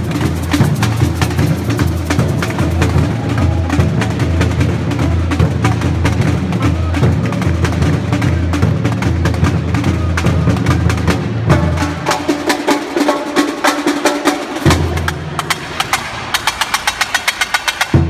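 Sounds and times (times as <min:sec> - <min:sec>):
samba drumming: 0:00.0 - 0:18.0.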